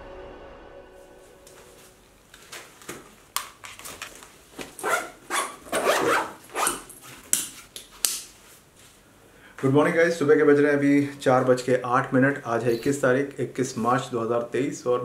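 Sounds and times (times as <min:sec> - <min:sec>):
backpack zipper zipping: 0:04.8 - 0:06.9.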